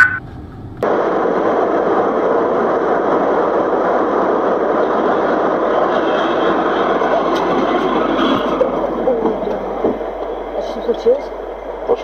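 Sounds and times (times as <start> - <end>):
car cabin road noise: 0.0 - 12.0.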